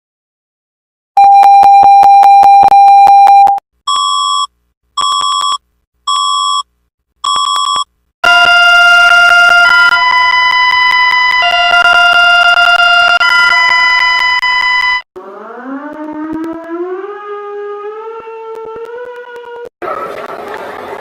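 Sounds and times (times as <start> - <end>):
short high beeps: 1.2 - 6.6
chord of alarm tones: 7.3 - 17.4.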